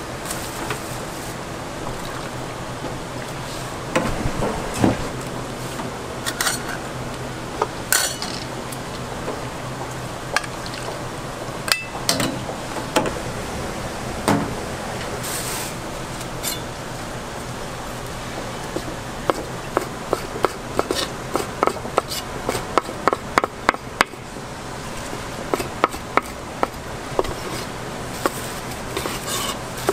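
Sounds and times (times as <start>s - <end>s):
steady background hum: 0.0s - 29.9s
utensils clinking on steel trays: 6.2s - 6.8s, 7.9s - 8.5s, 27.2s - 29.9s
skewers scraping in a tray: 27.2s - 29.9s.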